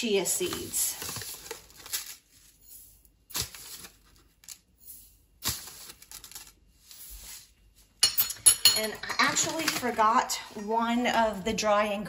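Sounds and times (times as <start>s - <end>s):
plastic bag rustling: 0.4s - 7.6s.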